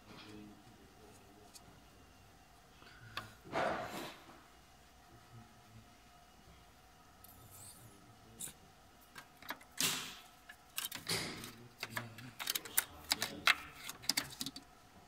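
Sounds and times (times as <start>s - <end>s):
sharp clicks and knocks: 9.1s - 14.7s.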